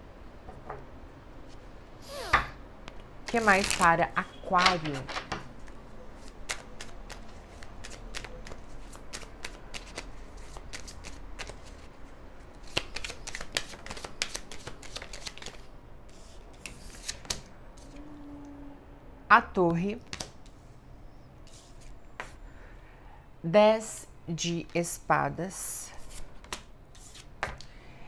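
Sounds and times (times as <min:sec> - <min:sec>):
cards shuffled by hand: 0:06.2 - 0:12.0, 0:12.6 - 0:18.0, 0:26.1 - 0:27.6.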